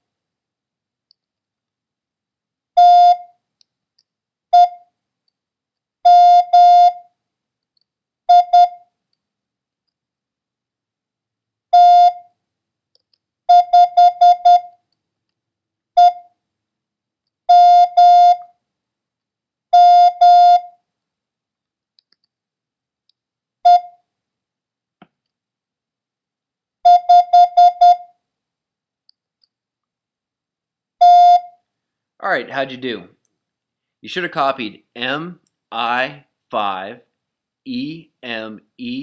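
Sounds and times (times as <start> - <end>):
morse code beeps: 2.8 - 3.3, 8.3 - 8.8, 13.5 - 14.7, 16.0 - 16.2, 17.5 - 18.4, 19.8 - 20.7, 23.7 - 23.9, 26.9 - 28.1, 31.0 - 31.5.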